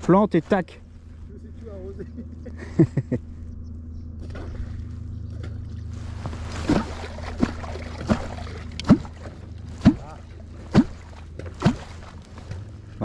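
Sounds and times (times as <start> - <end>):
steady low hum: 0.0 - 13.0
hollow plop in water: 4.2 - 12.6.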